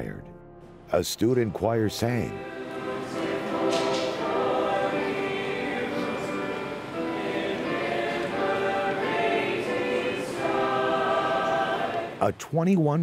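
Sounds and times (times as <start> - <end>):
choir singing in harmony: 2.0 - 12.2.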